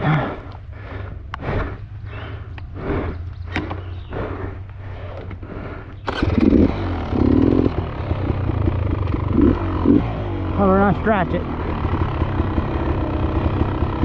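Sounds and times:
dirt bike engine starting and revving: 4.8 - 14.0.

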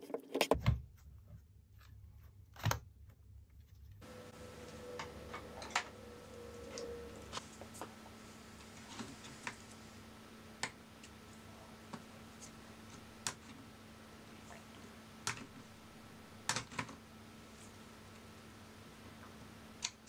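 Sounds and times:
faint steady hum: 4.0 - 20.0.

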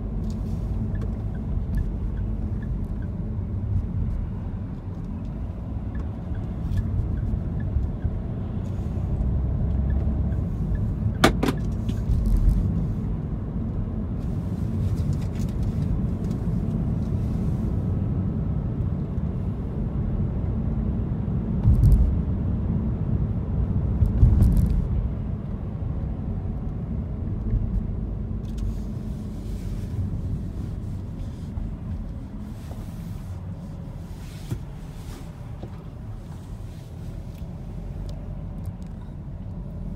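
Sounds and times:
car engine and road noise: 0.0 - 39.9
low bumps: 21.6 - 22.4, 23.7 - 39.3.

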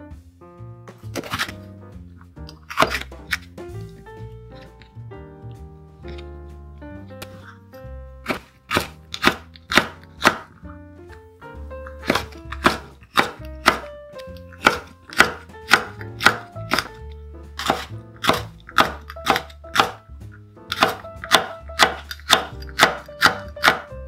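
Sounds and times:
background music with bass: 0.0 - 24.0
knife chopping on wooden board: 1.0 - 1.6, 2.5 - 3.7, 8.2 - 10.6, 11.9 - 20.0, 20.7 - 24.0.

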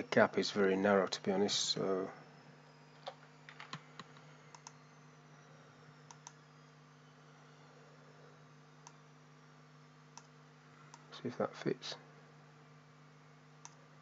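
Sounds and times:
faint low hum: 0.0 - 14.0
computer keys and mouse clicks: 3.0 - 4.8.

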